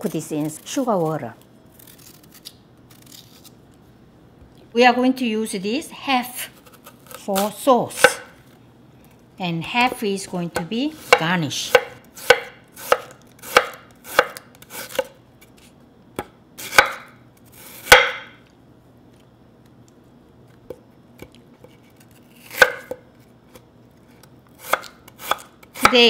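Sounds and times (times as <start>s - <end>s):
knife slicing pear: 6.4s - 8.3s, 9.8s - 15.6s, 16.6s - 18.4s, 21.6s - 23.0s, 24.6s - 26.0s.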